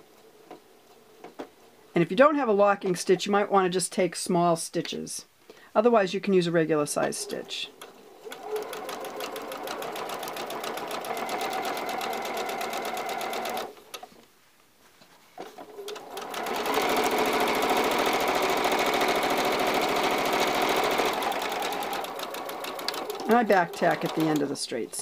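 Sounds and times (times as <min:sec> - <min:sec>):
sewing machine stitching: 0:08.2 - 0:13.7, 0:15.4 - 0:24.5.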